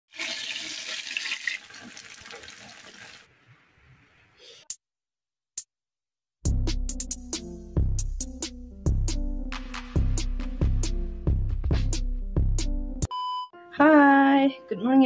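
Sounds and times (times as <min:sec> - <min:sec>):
food sizzling in hot oil: 0:00.1 - 0:03.2
music with drum beat: 0:06.5 - 0:12.8.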